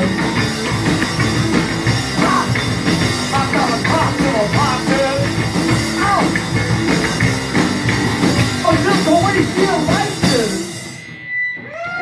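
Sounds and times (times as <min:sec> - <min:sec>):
electric bass: 0:00.0 - 0:11.8
drum kit: 0:00.0 - 0:12.0
electric guitar: 0:00.0 - 0:12.0
man singing: 0:02.2 - 0:06.4, 0:08.6 - 0:10.8.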